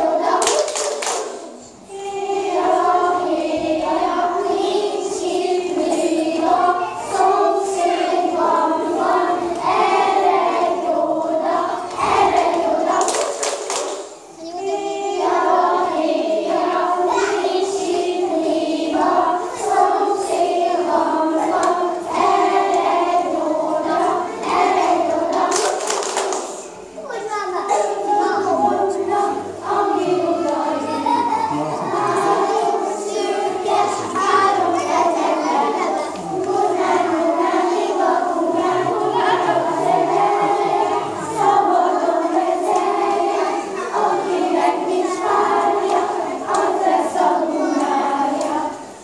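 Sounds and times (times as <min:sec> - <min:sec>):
children singing in unison: 0:00.0 - 0:49.0.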